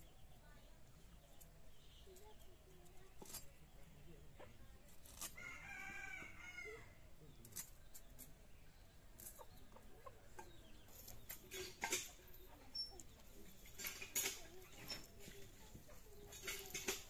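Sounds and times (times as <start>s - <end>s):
rooster crowing: 5.4s - 6.9s.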